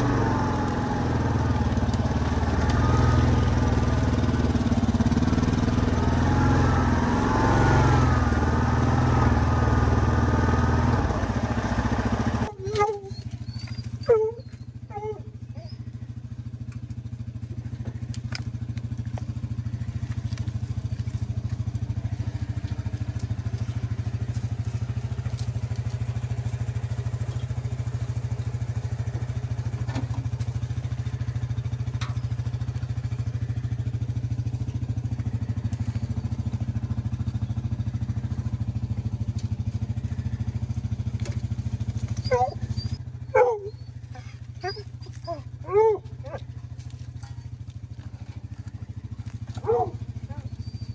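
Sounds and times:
atv engine idling: 0.0 - 50.9.

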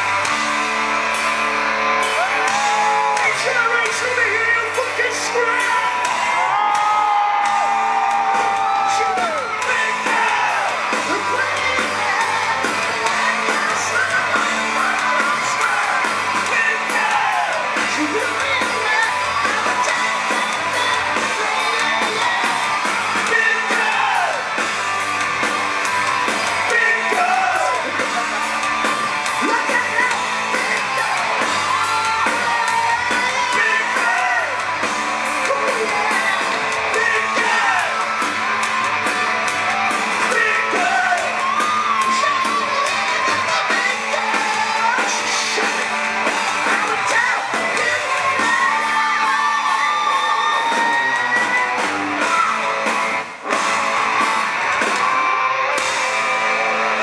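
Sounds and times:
hard rock band playing live: 0.0 - 57.0
man singing lead vocals: 2.3 - 24.5, 26.6 - 28.4, 29.4 - 34.8, 35.4 - 38.2, 40.2 - 52.7.

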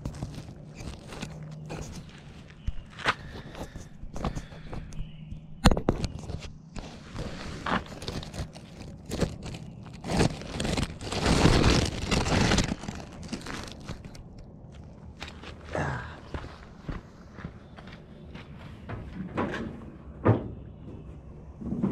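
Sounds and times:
footsteps crunching on gravel: 0.0 - 5.5, 14.7 - 19.1
knocks and scuffs: 16.3 - 21.9.

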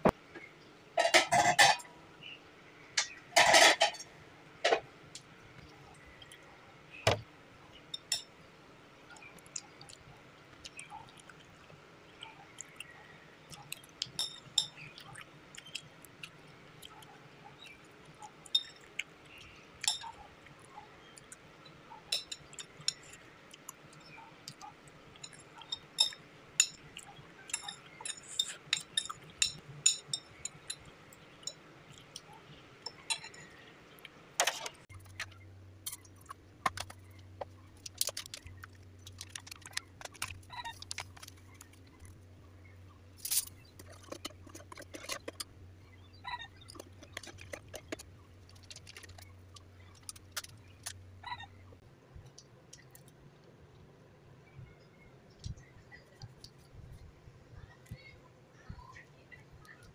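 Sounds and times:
cutlery clinking on plate: 1.0 - 1.9
chewing sounds: 9.1 - 29.3, 34.9 - 42.3, 43.2 - 45.6, 46.2 - 51.1.

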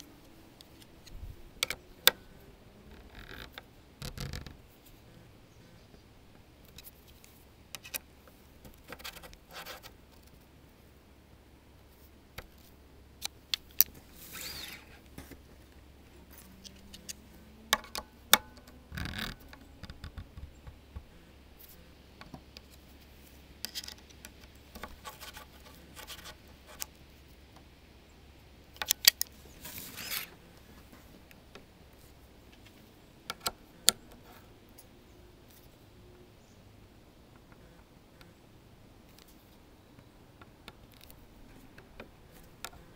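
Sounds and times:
metallic clicks and scrapes: 12.4 - 27.0, 28.8 - 31.2.

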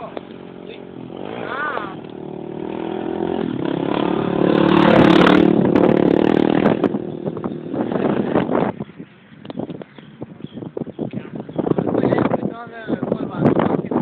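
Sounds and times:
motorcycle passing by: 0.0 - 8.8.

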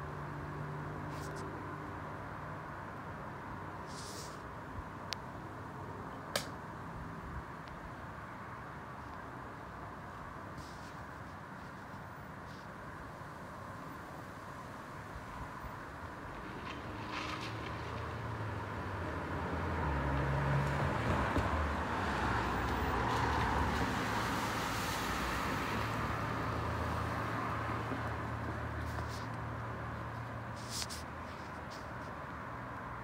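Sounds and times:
vehicle passing by: 16.2 - 33.0.

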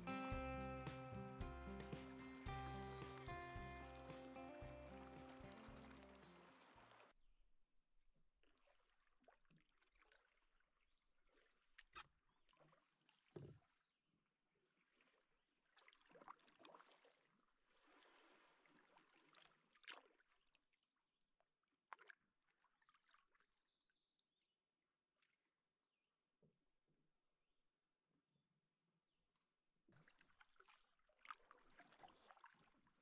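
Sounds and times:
paddle swishing in water: 0.0 - 7.1, 8.4 - 13.9, 14.5 - 21.0, 29.9 - 33.0.

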